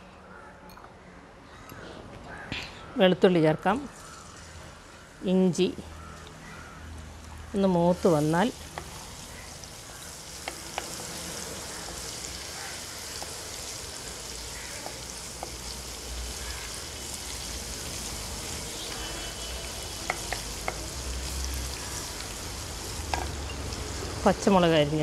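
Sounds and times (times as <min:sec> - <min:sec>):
vegetables sizzling in hot oil: 0:03.8 - 0:25.0
wooden spoon tapping a pan: 0:10.4 - 0:11.0, 0:14.8 - 0:15.6, 0:19.6 - 0:20.9, 0:23.1 - 0:23.4.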